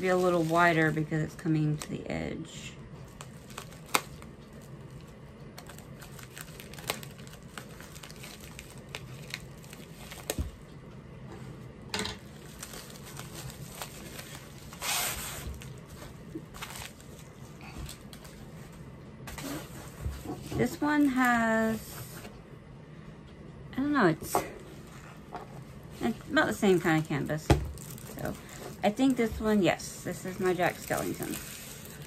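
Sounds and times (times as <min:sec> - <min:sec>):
plastic wrapping crinkling and tearing: 0:00.0 - 0:02.0, 0:03.0 - 0:10.7, 0:12.2 - 0:19.7, 0:24.8 - 0:32.0
wrapping rustles: 0:00.0 - 0:02.0, 0:03.0 - 0:10.7, 0:12.2 - 0:22.2, 0:24.7 - 0:32.0.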